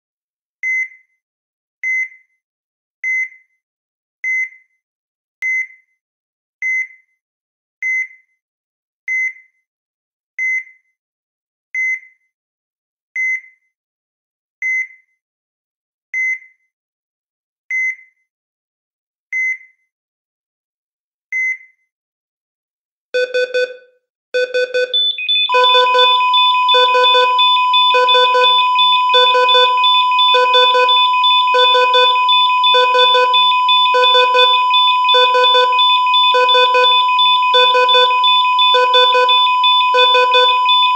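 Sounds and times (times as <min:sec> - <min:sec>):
heart monitor beeps: 0:23.2 - 0:23.8, 0:24.4 - 0:40.9
multi-tone alarm: 0:24.4 - 0:40.9
flatline tone: 0:25.5 - 0:40.9.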